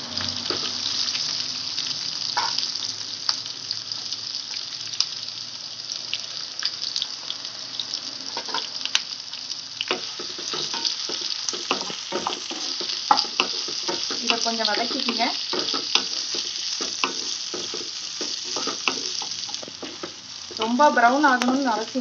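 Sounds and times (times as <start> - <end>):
onions sizzling in hot oil: 0.0 - 22.0
wooden spatula scraping: 9.9 - 20.8.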